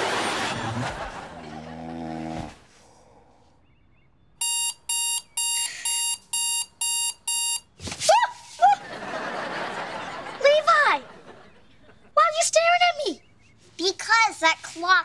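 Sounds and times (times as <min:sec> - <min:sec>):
alarm clock beeping: 0:04.4 - 0:07.7.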